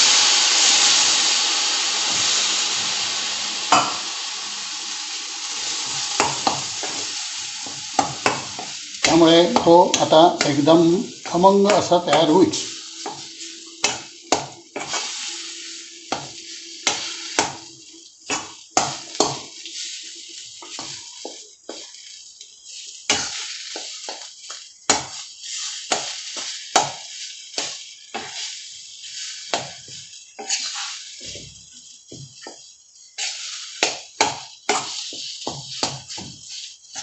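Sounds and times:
light sizzle: 0:00.0 - 0:37.0
metal spatula scraping iron pan: 0:05.8 - 0:17.6, 0:22.7 - 0:37.0.

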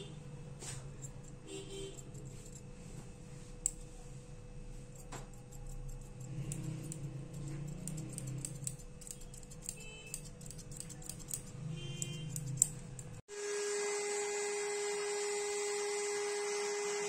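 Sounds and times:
scissors snipping fur: 0:00.6 - 0:02.6, 0:03.6 - 0:03.9, 0:04.9 - 0:13.2.

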